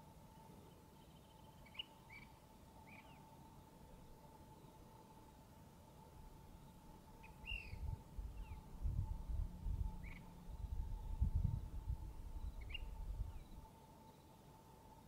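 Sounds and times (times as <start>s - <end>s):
faint steady hum: 0.0s - 15.0s
bird calling: 7.2s - 8.6s.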